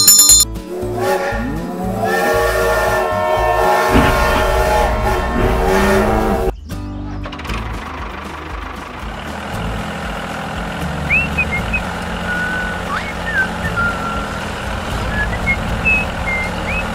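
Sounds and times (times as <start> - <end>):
tractor engine running: 3.4 - 6.5, 7.2 - 16.9
bird chirps and whistles: 11.1 - 14.3, 15.2 - 16.9.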